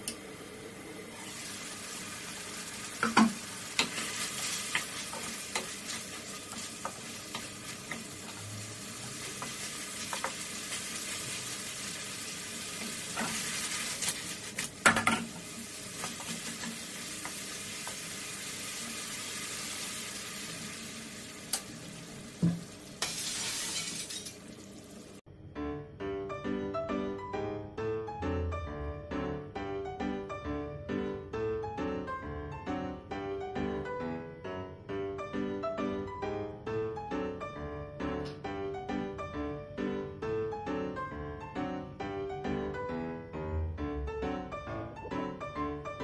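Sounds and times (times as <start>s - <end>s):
sauce simmering and sizzling: 0.4s - 25.2s.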